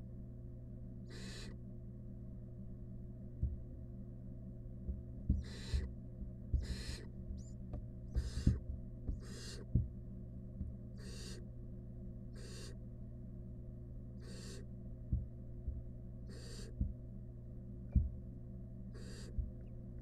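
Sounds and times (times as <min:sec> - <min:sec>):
steady low hum: 0:00.0 - 0:20.0
owl chicks hissing calls: 0:01.1 - 0:01.6, 0:05.4 - 0:05.9, 0:06.6 - 0:07.5, 0:08.2 - 0:08.6, 0:09.2 - 0:09.7, 0:11.0 - 0:11.4, 0:12.4 - 0:12.8, 0:14.2 - 0:14.7, 0:16.3 - 0:16.8, 0:18.9 - 0:19.4
soft knocks of chicks shifting: 0:06.5 - 0:10.0.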